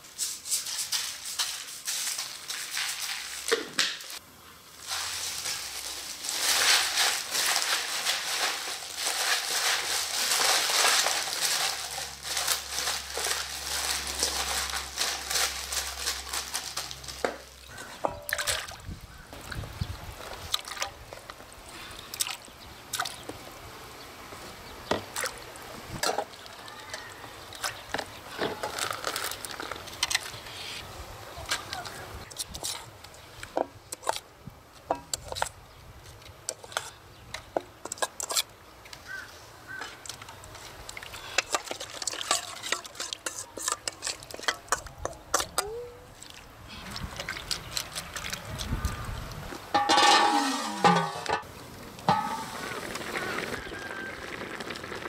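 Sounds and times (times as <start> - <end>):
greens rustling and squishing in bowl: 0.4 - 18.8, 37.9 - 50.5.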